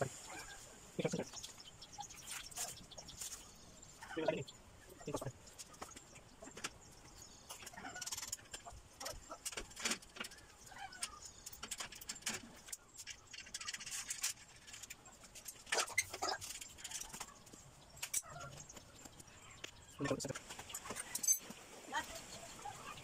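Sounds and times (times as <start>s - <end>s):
metal tools clinking: 21.0s - 21.5s.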